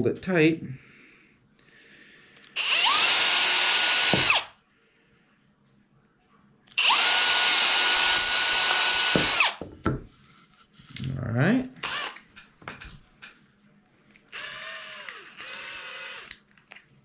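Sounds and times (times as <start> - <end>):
cordless drill driving a screw: 2.6 - 4.5, 6.8 - 9.6, 11.8 - 12.2, 14.3 - 16.4.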